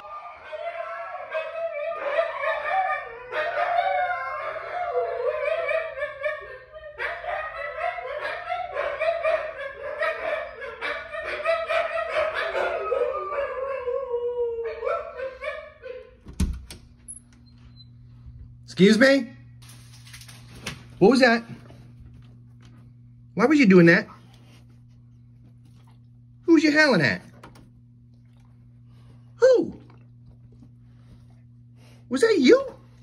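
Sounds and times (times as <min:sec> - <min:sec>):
dogs howling together: 0:00.0 - 0:16.2.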